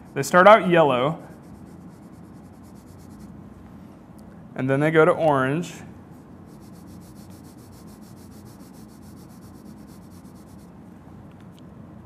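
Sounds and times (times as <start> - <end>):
crayon scratching on paper: 1.2 - 3.3, 6.1 - 10.7.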